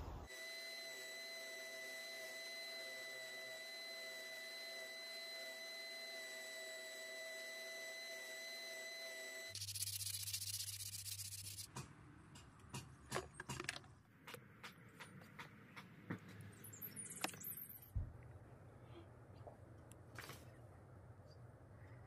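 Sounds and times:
spindle sander motor humming: 0.3 - 11.7.

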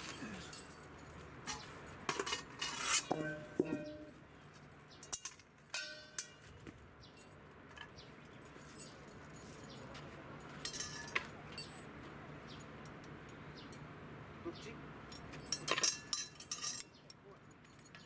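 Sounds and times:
metal cookware clinking: 1.5 - 4.1, 5.0 - 6.4, 15.5 - 17.0
short metallic ring: 5.0 - 6.6
wire pot handle clinking: 5.1 - 6.4, 15.5 - 17.0.

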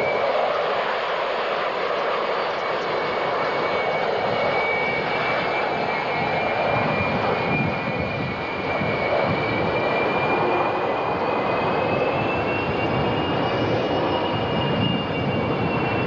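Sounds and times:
jet engines rushing and whining: 0.0 - 16.0.

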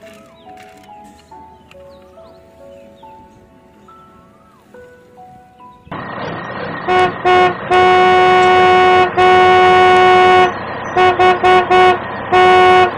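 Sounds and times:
engine rumble: 5.6 - 12.9
car horn honking: 6.8 - 12.9.

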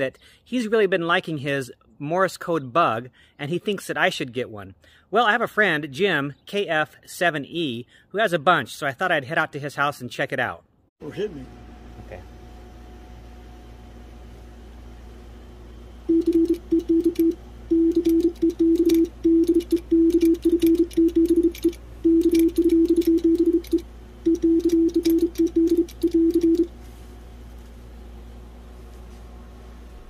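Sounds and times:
morse code tone: 16.1 - 26.7.

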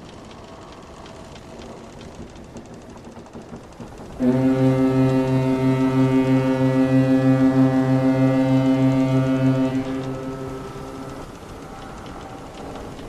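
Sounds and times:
ship's horn blast: 4.2 - 12.2.

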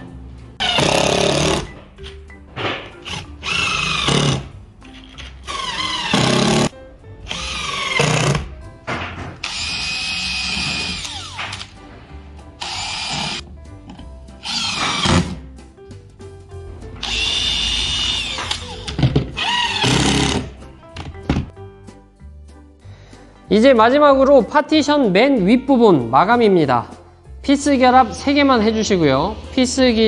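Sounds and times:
cordless drill driving into wood: 9.4 - 11.7.

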